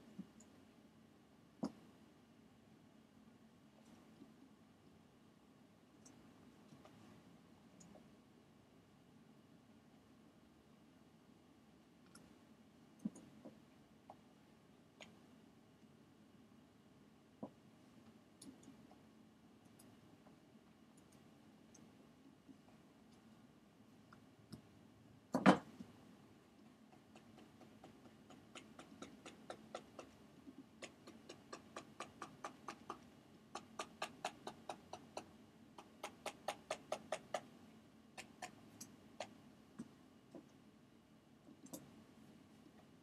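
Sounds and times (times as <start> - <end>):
computer mouse clicking: 13.0 - 13.6, 18.4 - 18.9, 26.9 - 37.5, 38.2 - 40.6, 41.5 - 42.0.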